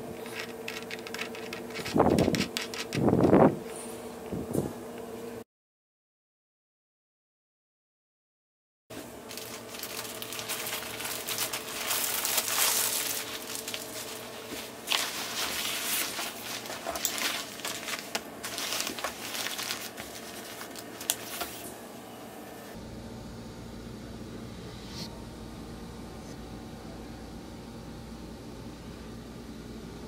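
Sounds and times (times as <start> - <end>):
low hum: 9.1 - 30.0
foam pad rustling and crinkling: 9.2 - 21.7.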